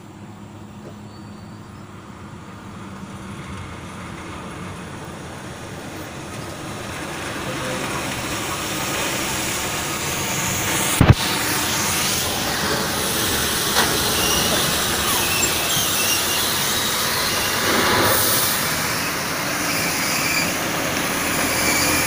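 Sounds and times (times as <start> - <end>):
truck diesel engine: 0.0 - 22.0
tyre hiss on wet road: 5.2 - 22.0
loud thump: 11.0 - 11.3.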